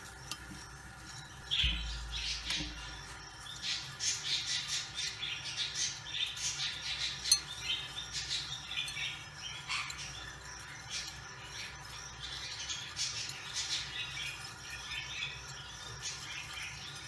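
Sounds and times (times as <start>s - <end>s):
hamsters scrabbling and squeaking: 0.0s - 17.0s.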